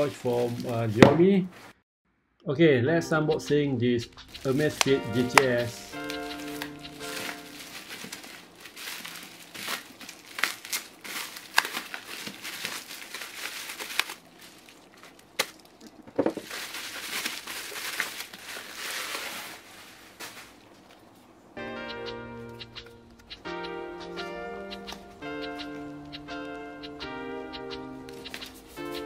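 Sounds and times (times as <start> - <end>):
bubble wrap crackling: 0.0 - 1.0, 4.3 - 21.0.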